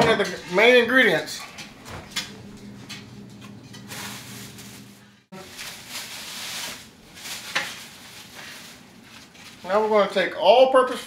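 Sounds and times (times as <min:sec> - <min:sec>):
gravy sizzling and stirring: 0:00.0 - 0:10.3
steady low hum: 0:01.6 - 0:05.3.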